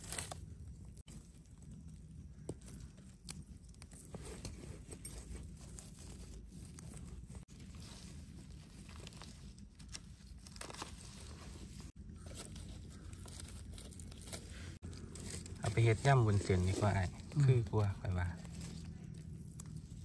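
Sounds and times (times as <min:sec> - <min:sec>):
dry leaves crinkling: 0:00.0 - 0:20.0
low steady rumble: 0:00.0 - 0:20.0
knife scraping mushroom stems: 0:12.1 - 0:20.0.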